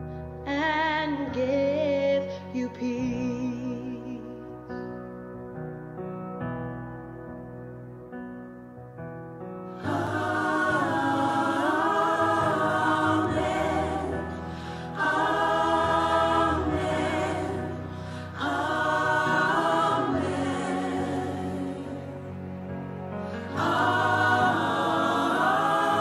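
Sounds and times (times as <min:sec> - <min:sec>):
gospel choir singing in harmony: 0:09.7 - 0:26.0.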